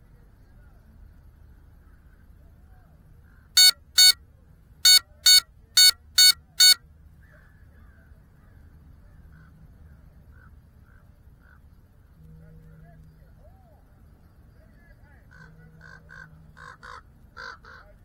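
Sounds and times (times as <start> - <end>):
faint background noise: 0.0 - 18.0
short harsh beeps: 3.6 - 4.2, 4.8 - 6.8.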